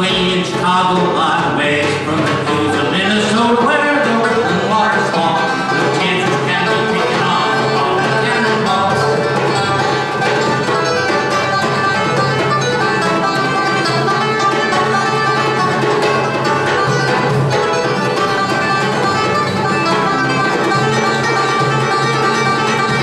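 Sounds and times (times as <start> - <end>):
acoustic guitar strumming: 0.0 - 23.0
banjo picking: 0.0 - 23.0
hand drum: 0.0 - 23.0.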